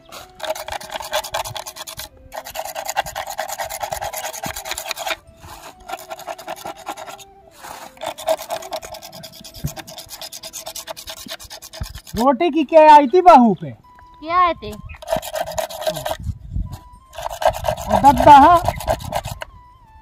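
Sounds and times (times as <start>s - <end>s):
stick scraping wooden mould: 0.1s - 12.3s, 15.0s - 16.2s, 17.1s - 19.5s.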